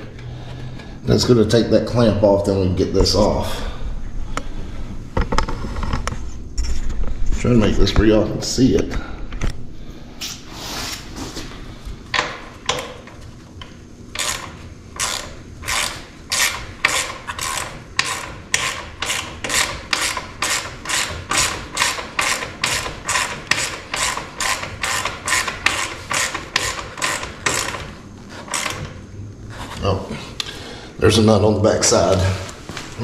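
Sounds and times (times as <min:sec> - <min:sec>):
ratchet wrench clicking: 0:14.1 - 0:27.9, 0:28.5 - 0:28.9.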